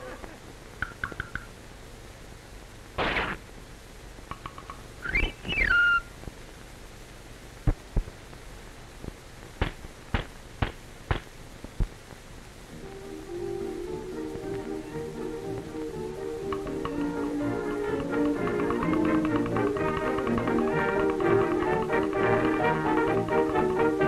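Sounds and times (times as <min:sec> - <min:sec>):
soundtrack hiss: 0:00.0 - 0:24.0
gliding whistle: 0:05.0 - 0:06.1.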